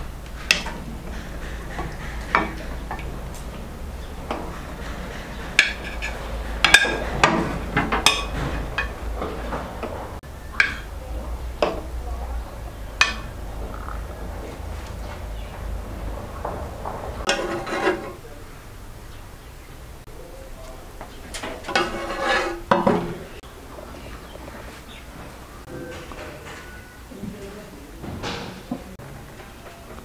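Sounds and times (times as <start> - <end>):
steady low hum: 0.0 - 25.7
metal ladle clinking on pan: 13.0 - 13.4.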